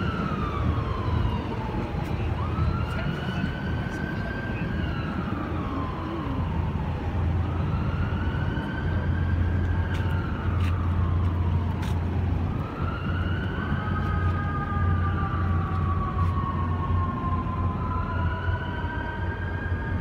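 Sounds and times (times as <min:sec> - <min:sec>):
emergency siren wailing: 0:00.0 - 0:20.0.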